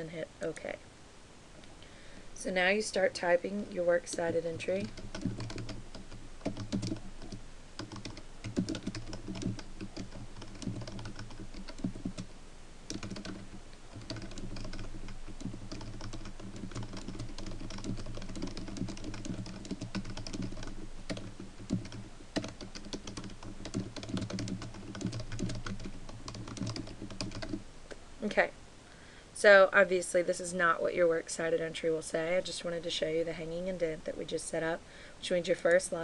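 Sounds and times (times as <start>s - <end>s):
computer keyboard typing: 4.0s - 12.3s, 12.9s - 27.6s.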